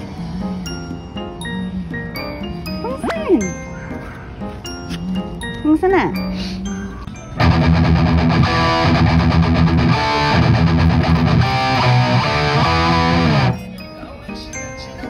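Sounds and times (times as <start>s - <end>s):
light quiet tune: 0.0s - 7.7s
distorted electric guitar music: 7.4s - 13.8s.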